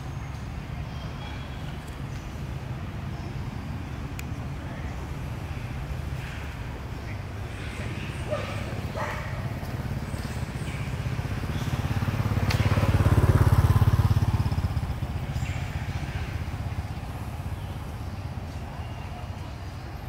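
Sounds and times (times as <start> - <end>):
vehicle engine passing by: 7.5 - 18.6.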